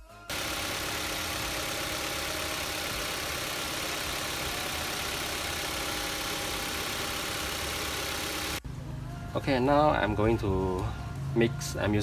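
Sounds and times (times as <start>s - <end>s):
car engine idling: 0.3s - 8.6s.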